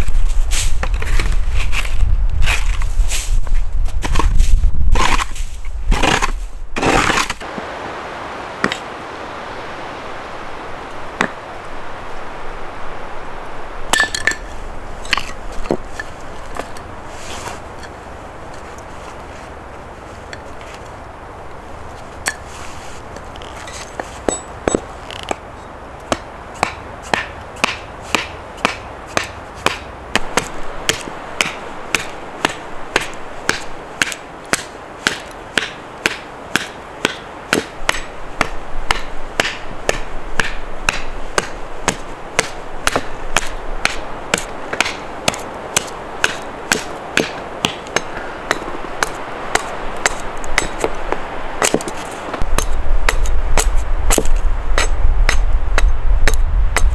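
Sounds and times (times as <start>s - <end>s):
hand tool striking: 26.1s - 51.0s, 51.6s - 56.9s.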